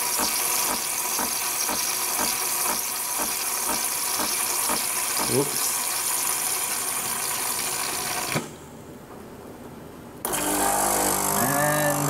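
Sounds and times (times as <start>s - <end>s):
milk frother hissing with pulse: 0.0s - 8.5s, 10.3s - 12.0s.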